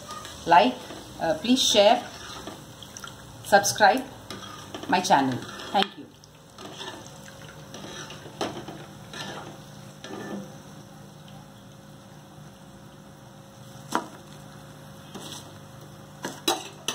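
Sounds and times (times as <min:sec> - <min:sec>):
spoon stirring and scraping pan: 0:00.0 - 0:02.9, 0:03.6 - 0:10.6, 0:15.0 - 0:15.6, 0:16.2 - 0:16.9
food sizzling in hot oil: 0:00.0 - 0:16.9.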